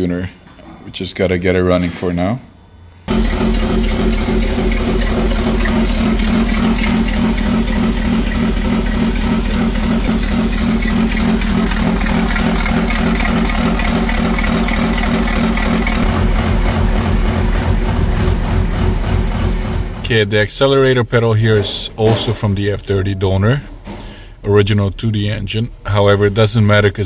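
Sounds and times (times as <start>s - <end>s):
car engine idling: 3.1s - 20.1s.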